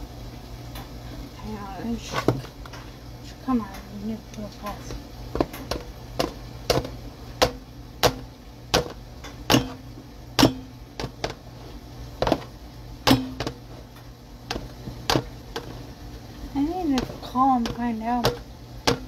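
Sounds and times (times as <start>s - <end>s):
air fryer basket knocking: 4.6s - 16.0s, 16.6s - 19.0s.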